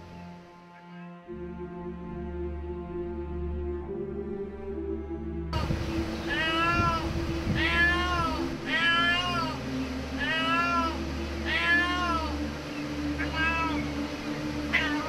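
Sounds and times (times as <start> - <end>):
cat meowing: 5.6 - 9.6, 10.2 - 12.4, 13.2 - 13.9, 14.7 - 15.0.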